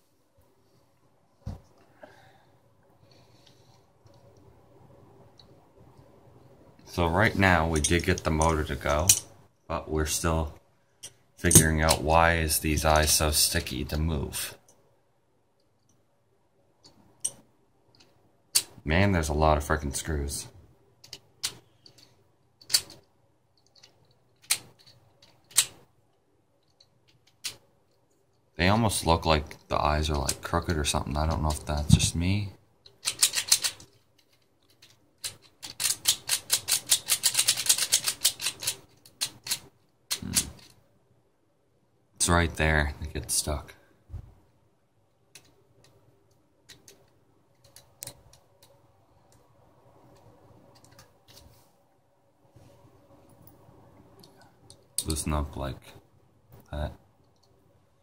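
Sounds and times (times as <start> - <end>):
small plastic parts clicking: 21.0 - 25.8, 26.6 - 28.1, 32.8 - 40.8, 45.3 - 49.5.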